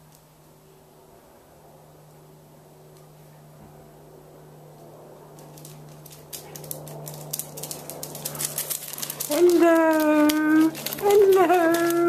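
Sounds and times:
dogs playing clicks and rustles: 0:05.3 - 0:12.0.

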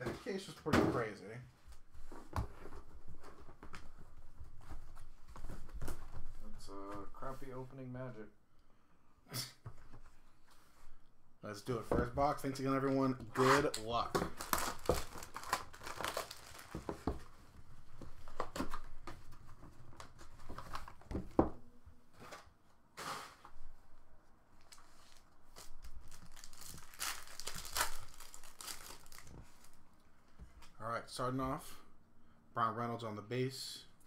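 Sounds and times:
plastic wrapping tearing and crinkling: 0:13.4 - 0:16.9, 0:24.6 - 0:29.8.

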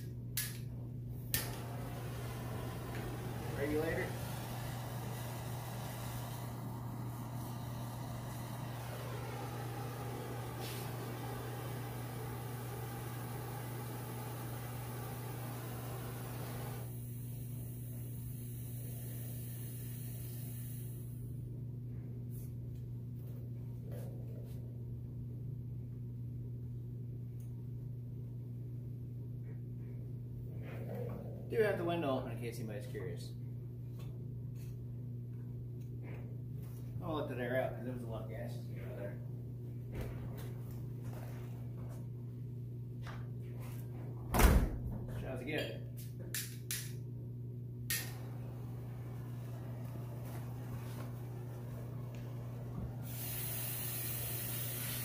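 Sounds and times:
low hum: 0:00.0 - 0:44.4, 0:46.0 - 0:54.6
gas burner hissing: 0:01.2 - 0:21.4, 0:47.8 - 0:55.0.

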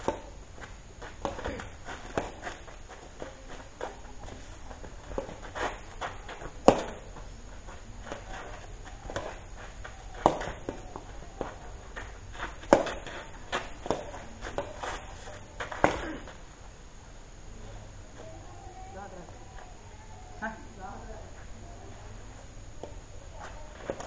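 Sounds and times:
shoes scuffing on dirt: 0:00.0 - 0:16.0
racket hitting shuttlecock: 0:05.2 - 0:07.0, 0:10.1 - 0:11.5, 0:12.4 - 0:15.0.

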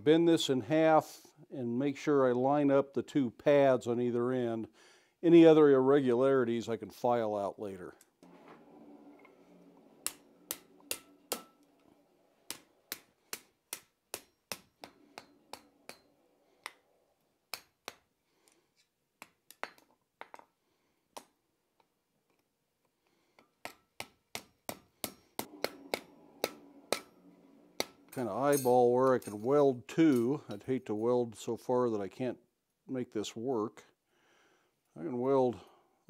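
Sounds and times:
hammer striking steel on anvil: 0:10.0 - 0:11.7, 0:12.5 - 0:16.8, 0:24.4 - 0:27.2, 0:27.8 - 0:29.5.

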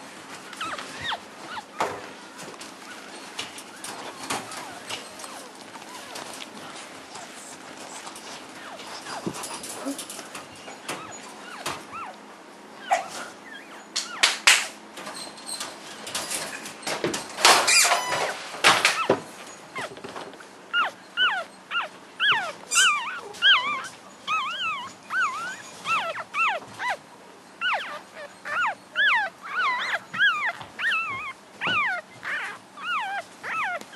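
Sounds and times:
rustles and knocks: 0:00.0 - 0:12.0, 0:14.4 - 0:20.6
puppies squeaking and whimpering: 0:00.4 - 0:33.9.

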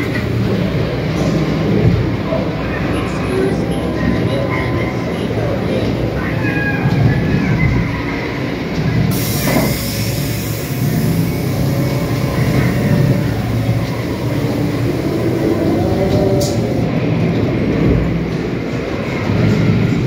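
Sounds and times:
ride car rumbling along track: 0:00.0 - 0:20.0
high hiss: 0:09.1 - 0:16.8.

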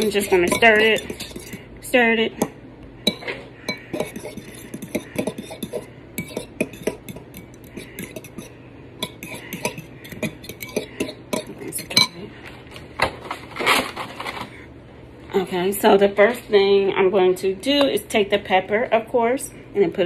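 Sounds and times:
fork clicking against bowl: 0:00.0 - 0:01.6, 0:03.1 - 0:12.1.

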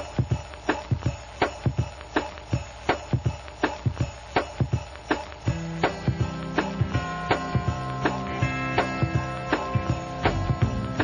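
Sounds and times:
drum beat: 0:00.0 - 0:11.0
instrumental song: 0:00.0 - 0:11.0.

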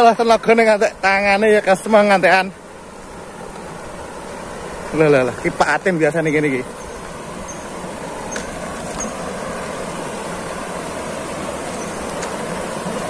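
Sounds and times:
small waterfall rushing: 0:00.0 - 0:13.0.

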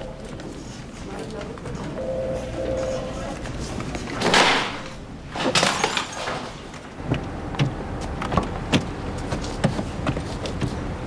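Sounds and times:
car engine and road rumble: 0:06.8 - 0:11.0.

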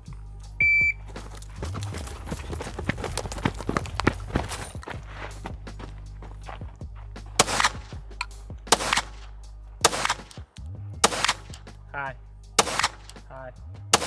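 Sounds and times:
pistol shots: 0:07.4 - 0:08.0, 0:08.7 - 0:11.6, 0:12.6 - 0:13.2.

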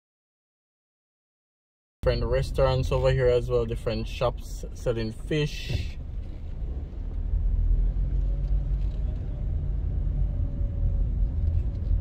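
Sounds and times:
car driving rumble inside cabin: 0:02.0 - 0:12.0.

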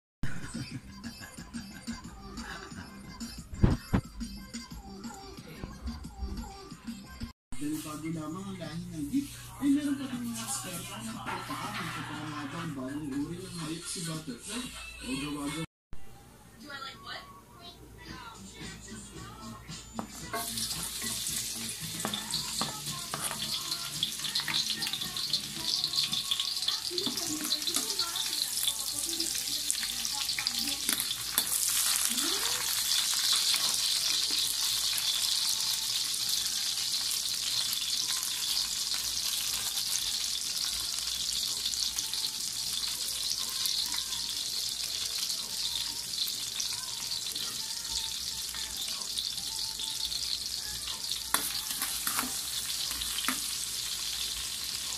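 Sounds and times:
food sizzling in hot oil: 0:20.0 - 0:54.9.

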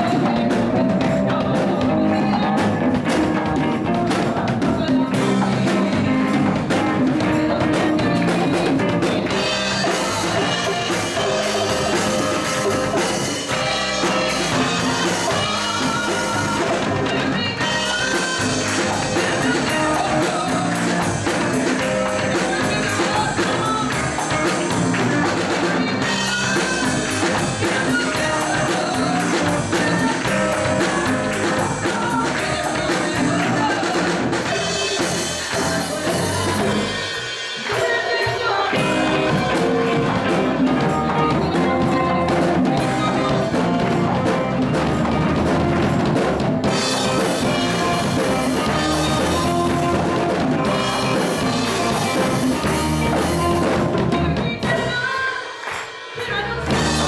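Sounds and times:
woman and girl singing: 0:00.0 - 0:02.6, 0:13.2 - 0:21.2, 0:22.1 - 0:36.9, 0:37.6 - 0:44.0, 0:51.1 - 0:55.6
live band playing: 0:00.0 - 0:57.0.

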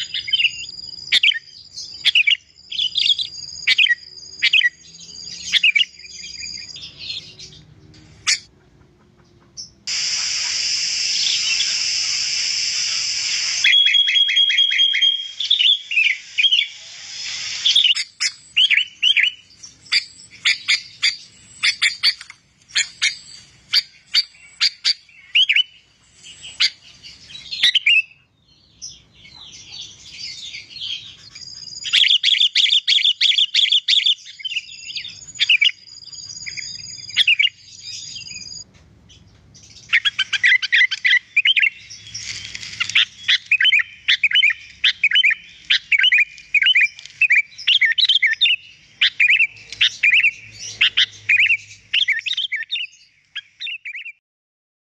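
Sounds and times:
bulbul singing: 0:00.0 - 0:08.5, 0:09.2 - 0:54.2
high held whistles: 0:00.1 - 0:06.8, 0:09.9 - 0:22.0.

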